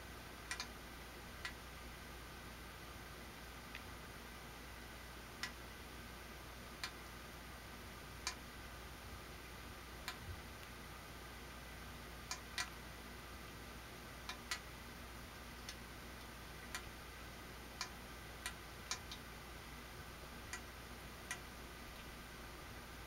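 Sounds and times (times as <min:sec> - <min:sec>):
low steady hum: 0:00.0 - 0:23.0
faint sharp clicks: 0:00.5 - 0:00.7.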